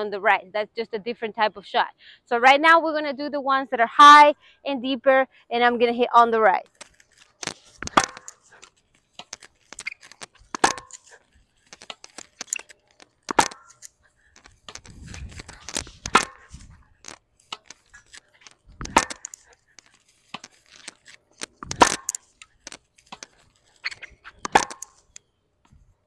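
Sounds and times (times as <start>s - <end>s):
tennis ball pops off rackets: 6.8s - 12.6s, 13.2s - 13.8s, 14.4s - 25.0s.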